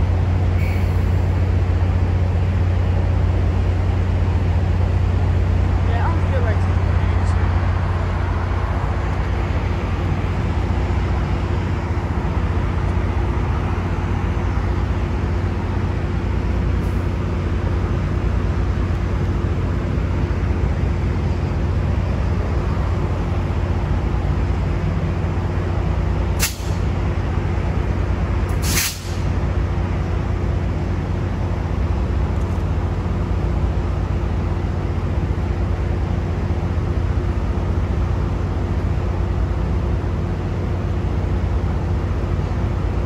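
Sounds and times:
diesel locomotive droning: 0.0 - 43.0
short hisses: 0.6 - 1.2, 28.6 - 29.2.

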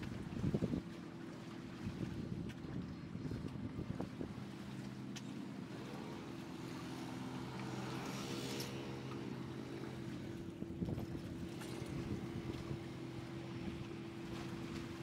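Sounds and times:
engine humming: 3.4 - 15.0.

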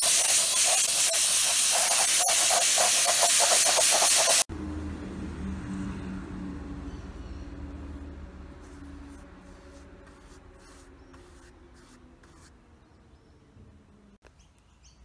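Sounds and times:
paintbrush scratching on rough wood: 0.0 - 4.5, 7.8 - 12.6.

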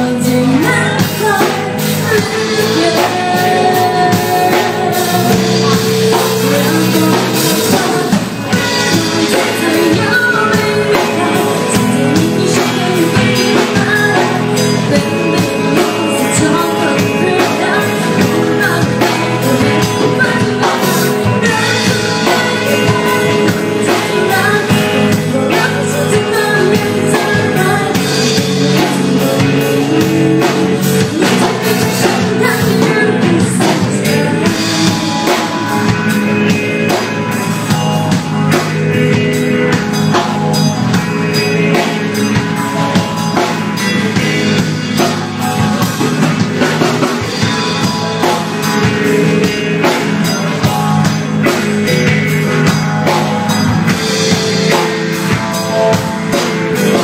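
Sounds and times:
woman singing: 0.0 - 37.1
drum kit: 0.0 - 57.0
electric guitars: 0.0 - 57.0.

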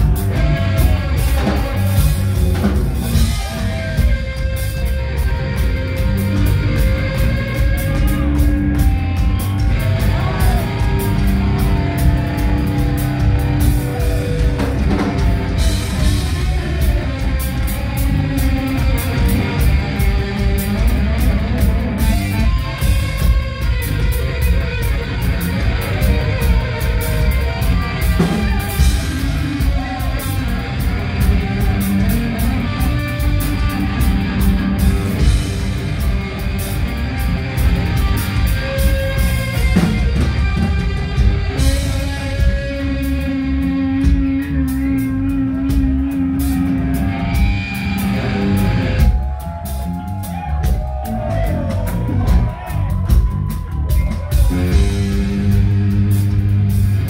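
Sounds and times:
bass guitar: 0.0 - 57.0
distorted electric guitars: 0.0 - 57.0
drum kit: 0.0 - 57.0.

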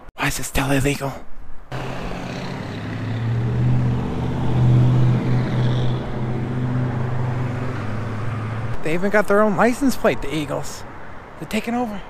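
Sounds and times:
truck engine hum driving by: 1.7 - 8.8.

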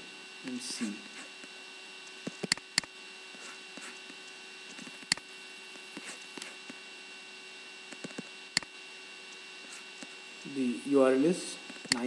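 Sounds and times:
steady electrical hum: 0.0 - 12.0
computer mouse clicks: 2.0 - 2.9, 3.8 - 5.3, 7.9 - 8.7, 11.7 - 12.0.

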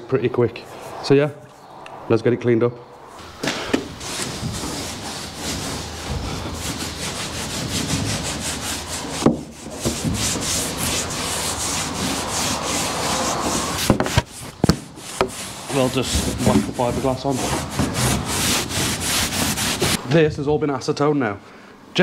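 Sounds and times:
rag rubbing on fibreglass: 3.2 - 20.0.

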